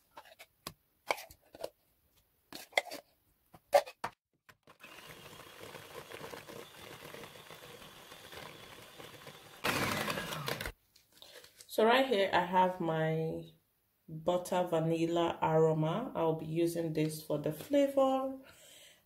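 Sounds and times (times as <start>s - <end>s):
electric hand mixer running: 4.6s - 10.8s.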